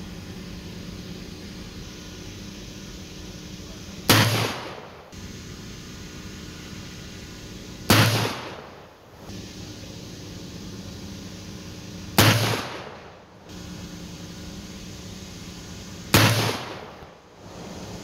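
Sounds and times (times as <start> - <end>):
generator humming: 0.0 - 18.0
revolver shots with echo: 4.1 - 5.0, 7.9 - 8.7, 12.2 - 13.0, 16.1 - 17.0.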